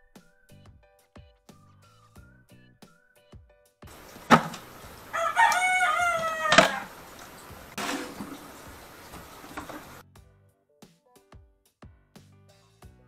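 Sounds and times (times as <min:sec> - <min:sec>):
long animal call: 0:04.0 - 0:10.0.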